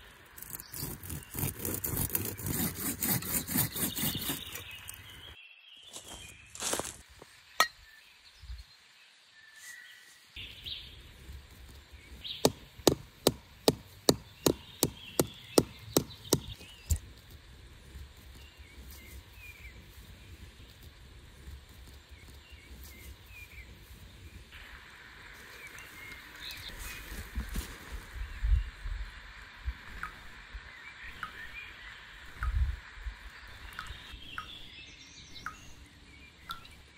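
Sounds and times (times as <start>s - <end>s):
knife rasping bark: 0.4s - 5.0s.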